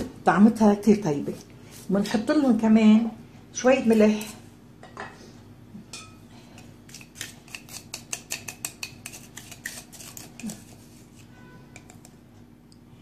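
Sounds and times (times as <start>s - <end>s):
kitchen utensils clicking and tapping: 7.2s - 10.5s.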